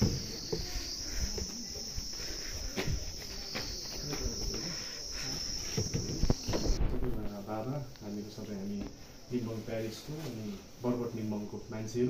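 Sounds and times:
faint knocks and shuffles: 0.0 - 6.8
high-pitched insect drone: 0.0 - 8.6.

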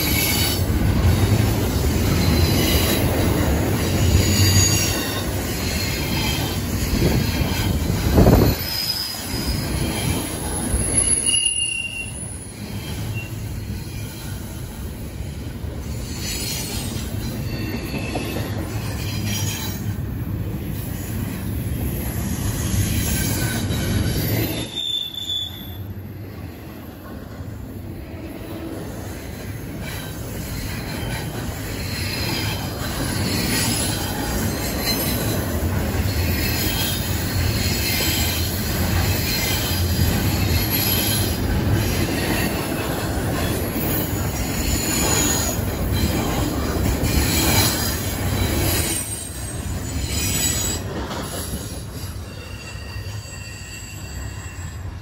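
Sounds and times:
train wheels rumbling on rail: 0.0 - 55.0
high-pitched wheel squeal: 4.1 - 14.2, 23.2 - 25.8, 52.0 - 55.0.

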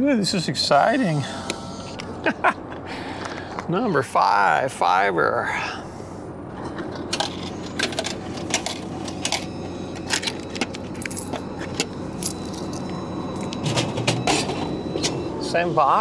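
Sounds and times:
coins jingling: 10.0 - 13.0.

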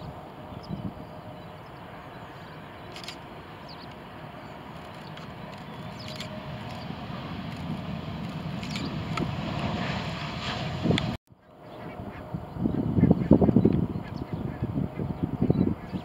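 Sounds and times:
jet engines rumbling: 0.0 - 16.0
bird chirps: 5.0 - 6.9.

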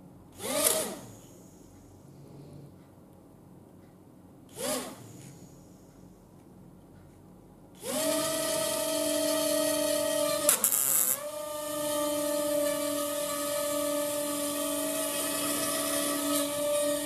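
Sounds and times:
small motors whining: 7.8 - 17.0.

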